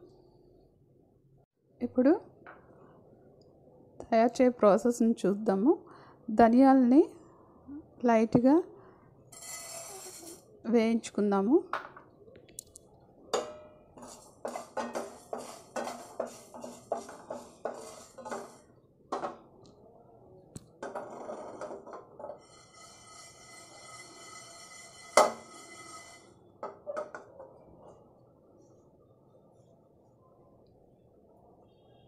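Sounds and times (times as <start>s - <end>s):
spatula scraping pan: 9.3s - 10.5s, 13.4s - 19.4s, 20.8s - 27.3s
seeds rattling in frying pan: 14.0s - 18.7s.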